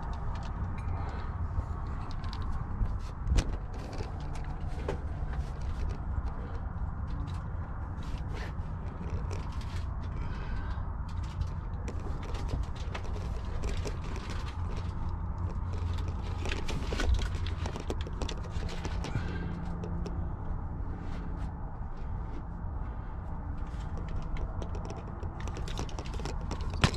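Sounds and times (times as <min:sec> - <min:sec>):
crawling over rock floor: 0:11.2 - 0:19.4.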